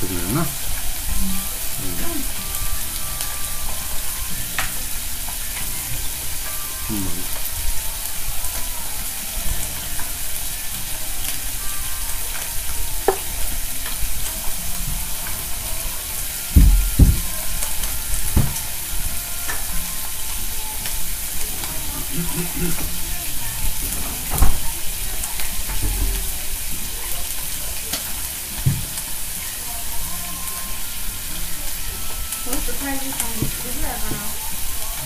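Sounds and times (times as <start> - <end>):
food sizzling on hot plate: 0.0 - 35.0
dull thumps: 16.6 - 17.5.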